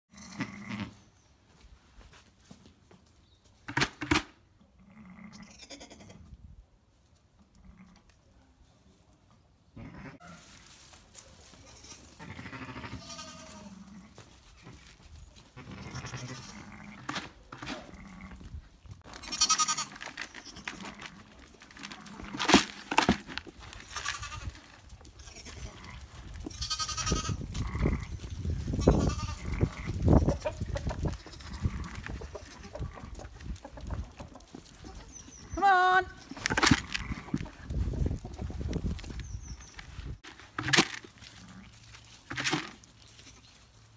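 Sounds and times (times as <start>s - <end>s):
sheep and lambs bleating: 0.1s - 1.1s, 4.8s - 6.3s, 7.5s - 8.0s, 9.8s - 10.4s, 11.5s - 14.9s, 15.6s - 17.1s, 17.8s - 18.5s, 19.1s - 21.3s, 23.8s - 24.6s, 25.2s - 30.2s, 31.1s - 33.2s, 34.8s - 37.5s.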